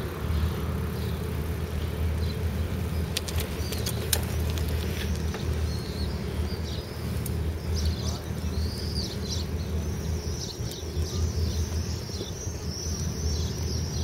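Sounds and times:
sharp clicks: 3.1 - 5.3.

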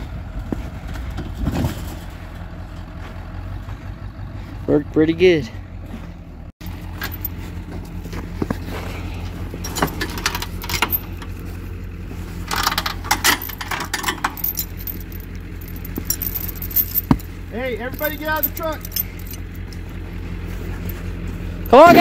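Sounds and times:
truck engine idling: 0.0 - 22.0
tow chain clinking: 6.6 - 22.0.

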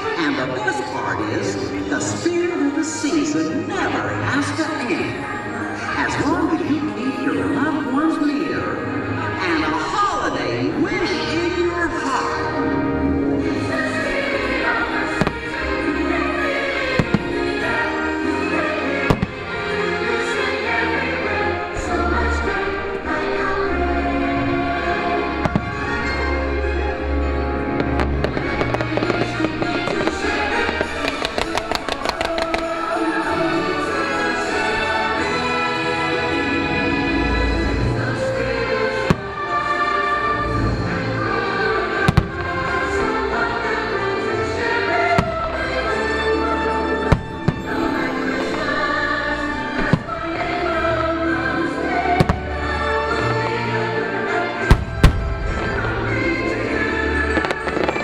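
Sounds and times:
show music: 0.0 - 58.0
fireworks bangs and crackles: 13.2 - 20.3, 24.0 - 26.4, 27.3 - 35.3, 38.9 - 39.8, 41.8 - 51.0, 51.7 - 53.4, 54.6 - 58.0
firework bursts banging: 27.8 - 33.1.

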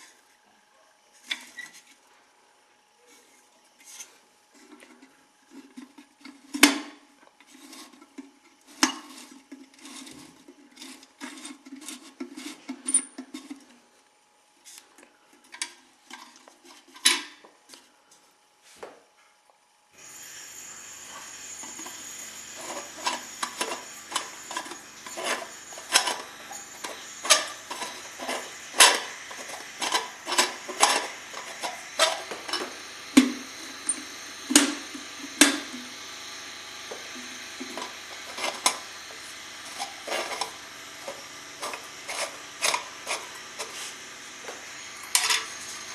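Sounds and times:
metal parts clinking: 22.6 - 32.6, 45.1 - 45.5.

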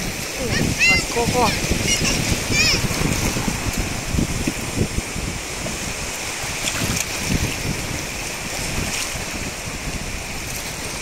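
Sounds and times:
waves washing on beach: 0.0 - 11.0
wind buffeting microphone: 0.0 - 11.0.

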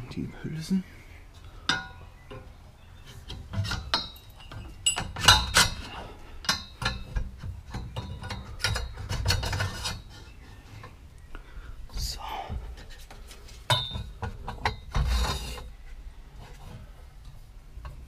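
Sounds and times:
metal tubes knocking and clinking: 1.6 - 2.5, 3.2 - 10.1, 13.7 - 15.1.

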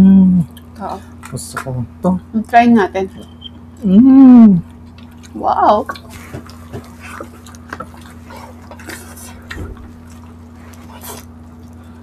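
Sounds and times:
faint steady hum: 0.0 - 12.0
wet chewing and mouth sounds: 4.6 - 12.0.

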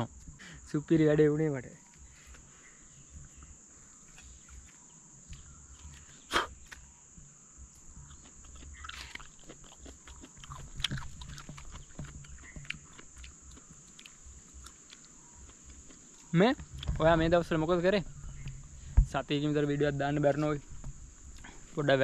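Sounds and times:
high insect drone: 0.0 - 22.0
wet chewing and mouth-smacking: 8.0 - 16.9.

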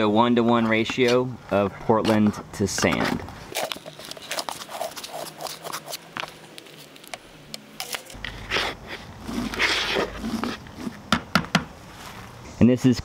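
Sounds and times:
trowel scraping and tapping bucket: 2.0 - 7.2.

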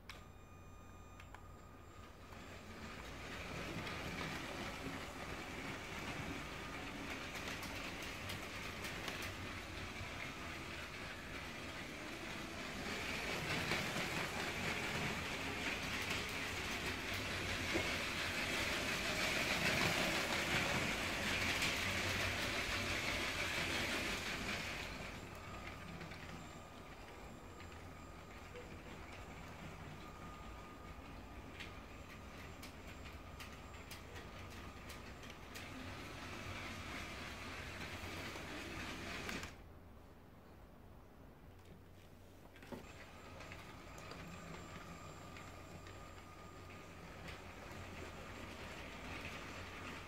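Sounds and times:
wheels rattling over rails: 2.3 - 26.9
electric toy train motor whirring: 2.6 - 24.9.

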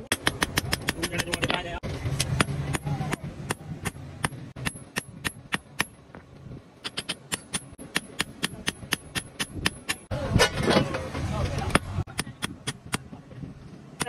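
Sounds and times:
hammer striking metal on anvil: 6.8 - 10.1.

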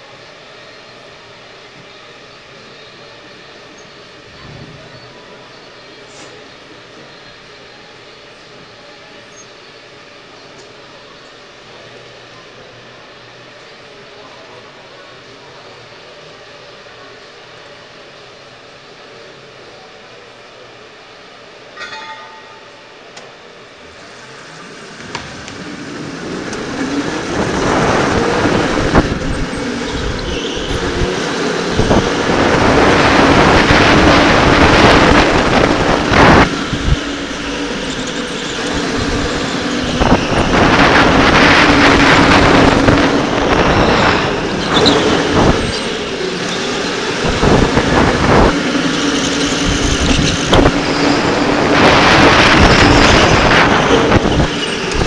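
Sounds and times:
loud rushing noise: 24.0 - 55.0.

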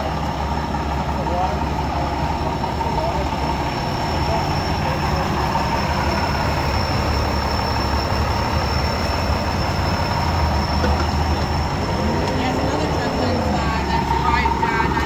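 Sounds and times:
diesel engine idling: 0.0 - 15.0.

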